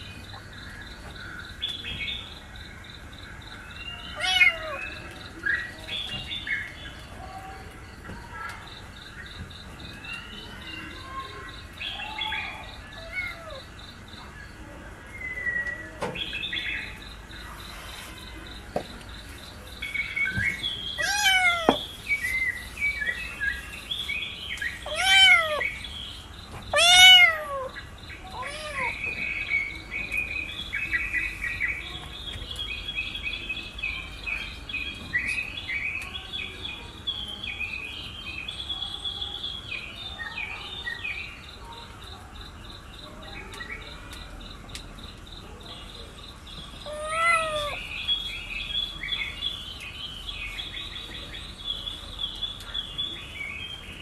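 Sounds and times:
high-pitched bird chirping: 19.8 - 33.2, 46.6 - 53.8
kitten meowing: 21.0 - 21.8, 24.9 - 25.6, 26.7 - 27.7, 28.3 - 28.9, 46.9 - 47.8.

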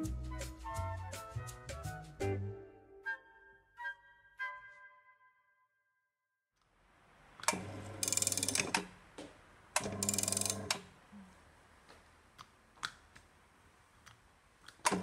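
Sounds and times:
rapid clicking: 8.0 - 8.8.

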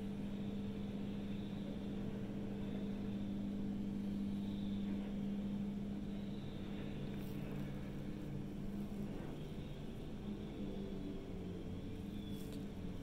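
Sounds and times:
distant diesel machinery drone: 0.0 - 13.0
faint high whine: 0.0 - 13.0.

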